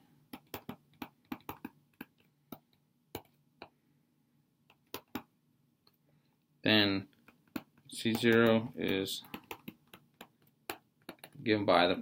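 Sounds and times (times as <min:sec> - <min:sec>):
stylus tapping on a screen: 0:00.3 - 0:03.8, 0:04.6 - 0:05.4, 0:07.1 - 0:11.4.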